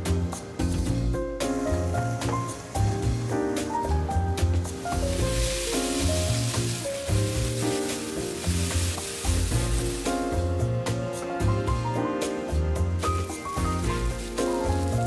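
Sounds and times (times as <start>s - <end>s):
background music: 0.0s - 15.0s
food sizzling in frying pan: 4.4s - 10.7s, 13.0s - 15.0s.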